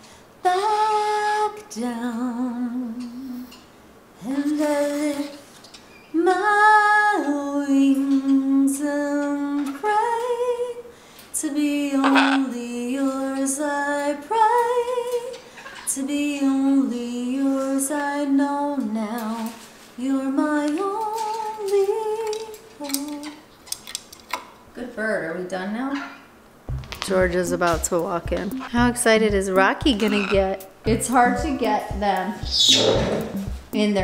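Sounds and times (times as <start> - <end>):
woman singing slow melody: 0.4 - 3.6, 4.2 - 5.5, 6.1 - 23.5, 28.5 - 32.4.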